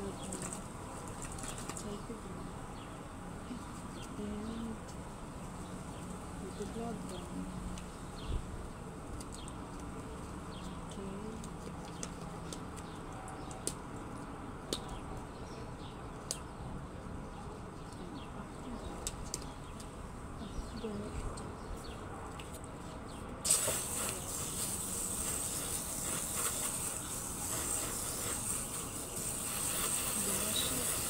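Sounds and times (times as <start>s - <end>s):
hose spraying water on screen door: 0.0s - 1.9s, 23.4s - 31.0s.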